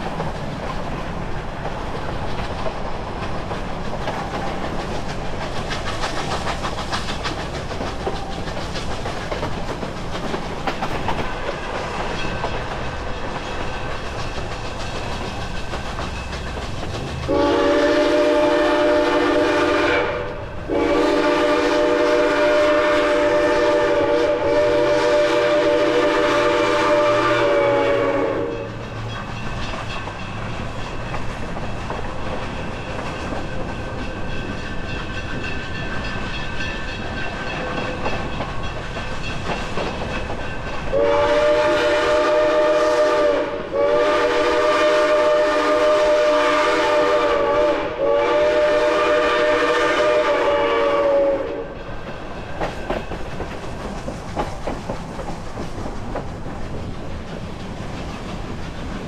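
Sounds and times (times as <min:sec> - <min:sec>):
coaches rolling on rails: 0:00.0 - 0:59.0
steam locomotive chime whistle: 0:17.3 - 0:31.2, 0:40.9 - 0:51.8.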